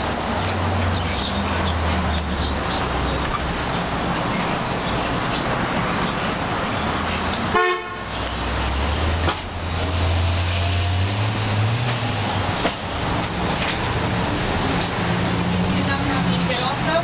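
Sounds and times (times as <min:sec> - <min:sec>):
vehicle horn toot: 0:07.5 - 0:08.1.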